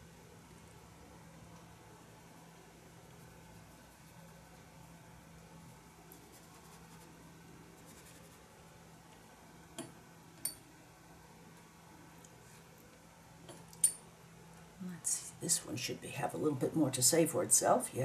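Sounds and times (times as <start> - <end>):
steady low hum: 0.0 - 18.0
paintbrush working lightly: 5.6 - 8.6.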